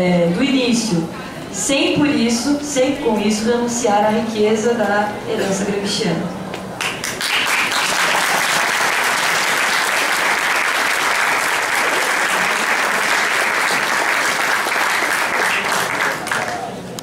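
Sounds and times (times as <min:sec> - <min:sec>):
audience applauding: 0:06.8 - 0:16.8.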